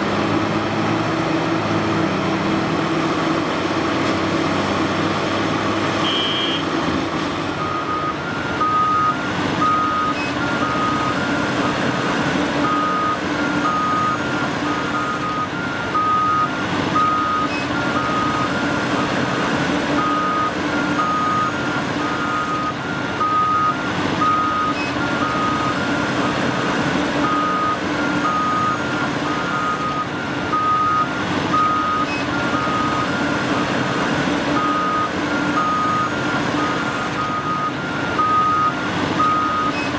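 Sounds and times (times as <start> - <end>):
heavy diesel machinery running: 0.0 - 39.9
backup alarm beeping: 36.8 - 39.9.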